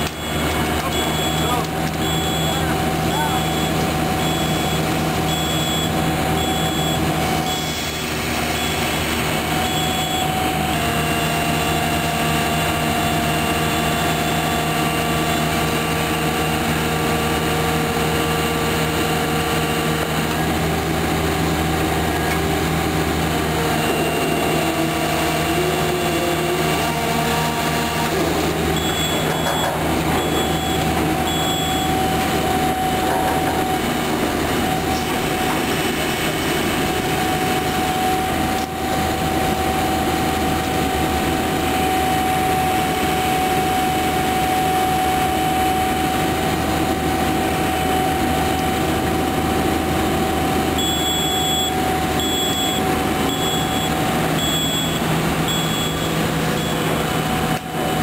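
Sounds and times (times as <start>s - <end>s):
warning alarm beeping: 0.0s - 16.8s, 23.6s - 33.1s, 50.8s - 57.2s
diesel engine running: 0.0s - 58.0s.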